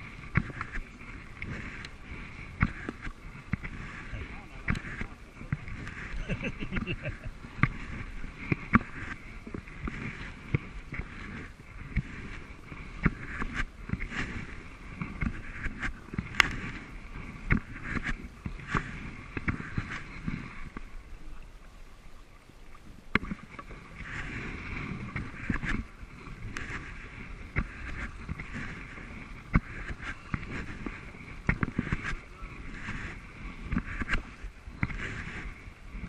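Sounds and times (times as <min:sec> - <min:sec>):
water splashing off paddles: 0:00.0 - 0:36.0.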